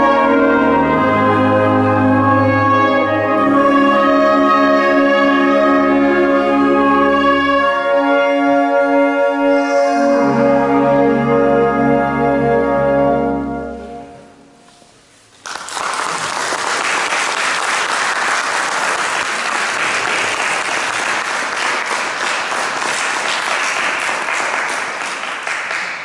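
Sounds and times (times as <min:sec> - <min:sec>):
wind ensemble holding chord: 0:00.0 - 0:15.2
audience applause: 0:15.4 - 0:26.0.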